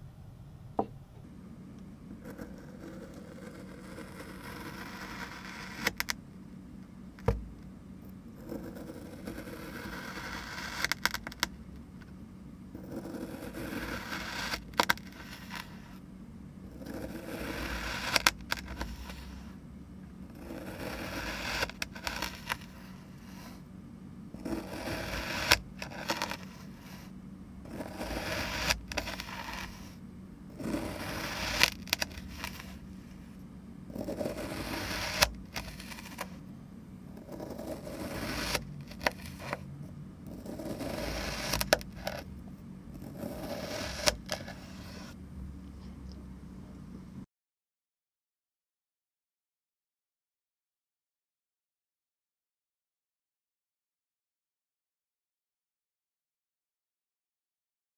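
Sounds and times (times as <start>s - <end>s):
plastic knife scraping through sand: 2.2s - 6.1s, 8.5s - 11.5s, 12.8s - 16.0s, 16.8s - 19.6s, 20.4s - 23.6s, 24.4s - 27.1s, 27.7s - 32.9s, 33.9s - 36.4s, 37.2s - 39.6s, 40.3s - 42.3s, 43.0s - 45.2s.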